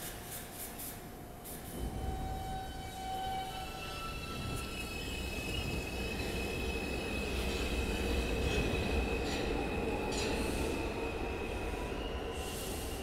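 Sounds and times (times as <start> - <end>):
subway train rumble: 0.0 - 13.0
high-pitched wheel squeal: 1.8 - 6.6.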